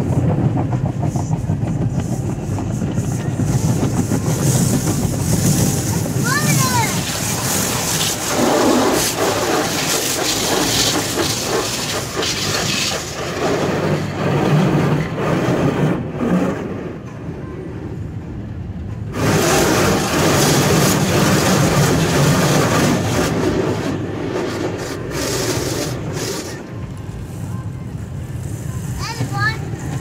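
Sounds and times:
running machinery: 0.0 - 17.1, 19.0 - 30.0
spraying water hiss: 1.1 - 14.0, 19.1 - 30.0.

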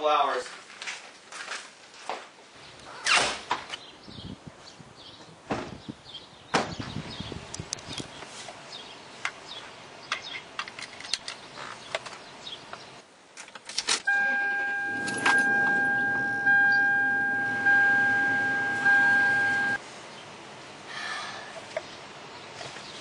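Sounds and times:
car warning chime dinging: 14.1 - 19.8.

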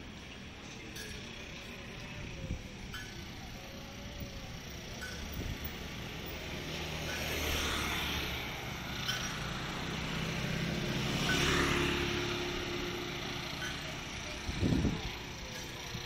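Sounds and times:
scooters riding past: 0.0 - 16.0.

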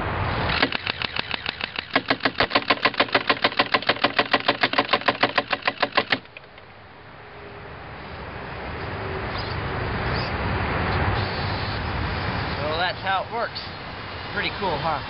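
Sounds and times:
airsoft gun firing full-auto: 0.5 - 6.3.

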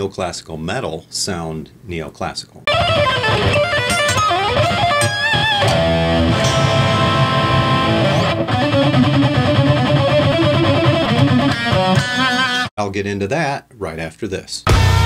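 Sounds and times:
electric guitar metal lead: 2.7 - 12.7, 14.7 - 15.0.

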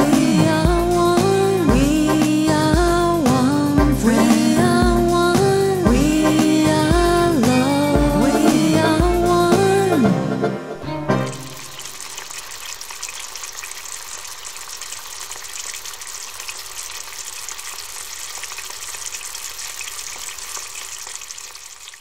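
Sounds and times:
background music: 0.0 - 11.8
food sizzling in a frying pan: 11.3 - 22.0.

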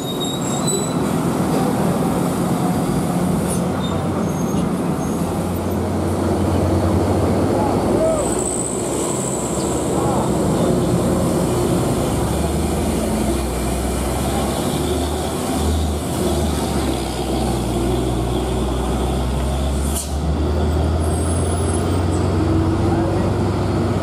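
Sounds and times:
truck diesel engine droning: 0.0 - 24.0.

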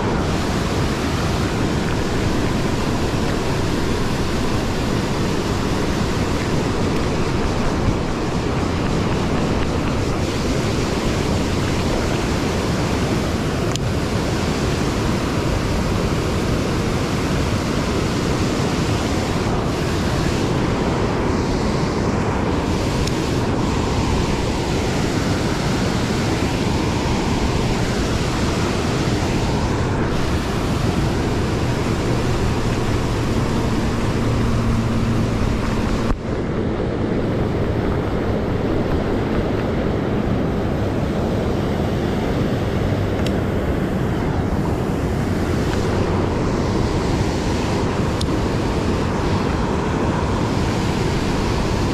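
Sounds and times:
white water rushing: 0.0 - 51.9.

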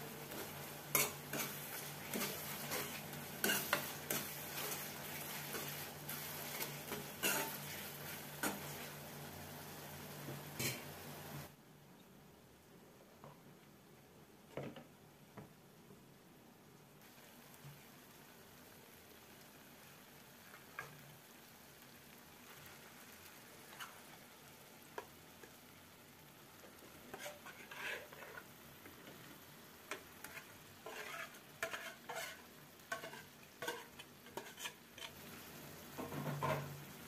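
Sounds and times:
food sizzling in a pan: 0.0 - 11.6, 17.0 - 37.0
metal ladle scraping a bowl: 27.1 - 28.4, 30.2 - 35.2.

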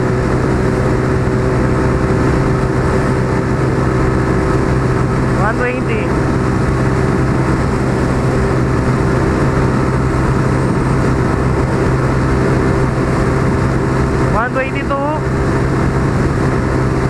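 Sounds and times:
motorcycle engine running at high speed: 0.0 - 17.0
wind rushing over microphone: 0.0 - 17.0.

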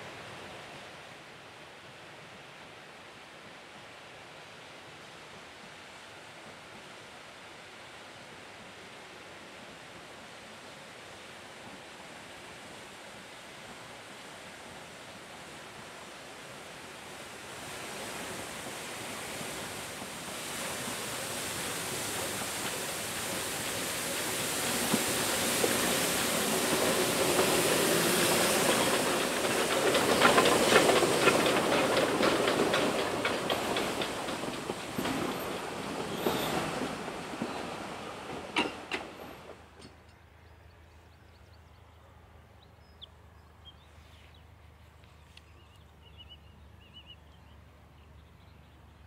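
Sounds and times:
river rushing: 0.0 - 39.6
steam train hiss and rumble: 0.0 - 40.0
carriages rolling past: 21.5 - 39.9
rhythmic locomotive clatter: 21.5 - 40.0.

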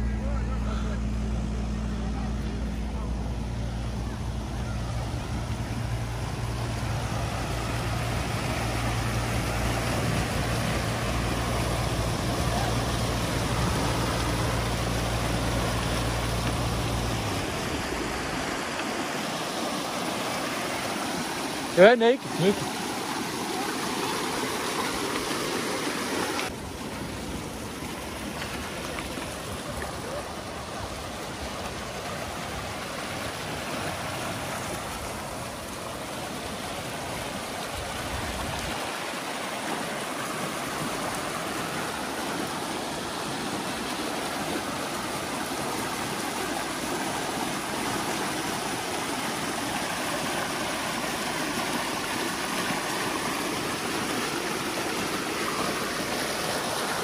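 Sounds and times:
water rushing through ditch: 0.0 - 57.0.

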